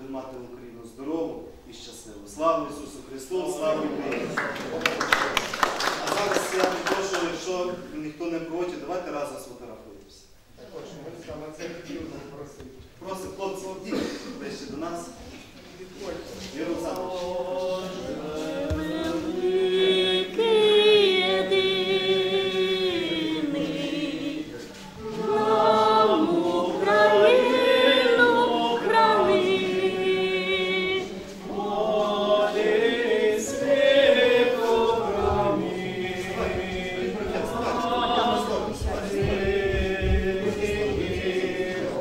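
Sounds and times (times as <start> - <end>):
group singing a hymn: 15.9 - 42.0.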